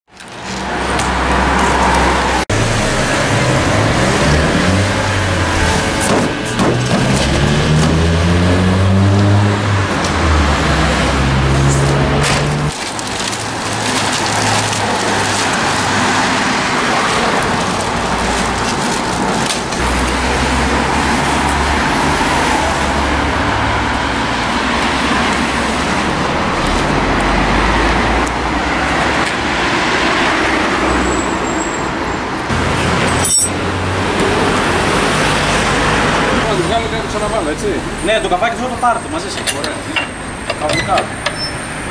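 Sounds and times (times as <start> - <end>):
vehicles passing on road: 0.1 - 41.9.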